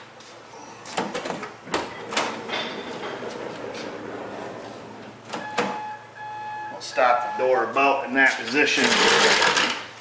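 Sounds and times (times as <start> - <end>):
sliding door running along track: 1.7 - 5.9.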